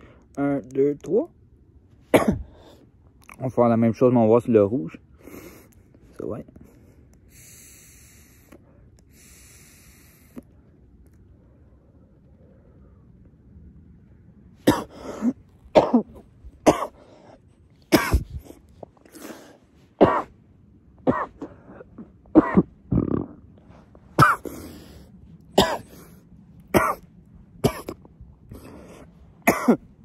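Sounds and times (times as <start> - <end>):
man coughing: 2.1 - 2.6, 14.6 - 17.0, 17.9 - 18.3, 20.0 - 20.3, 21.1 - 23.3, 24.2 - 24.6, 25.6 - 26.0, 26.7 - 27.0, 27.6 - 28.1, 29.4 - 29.9.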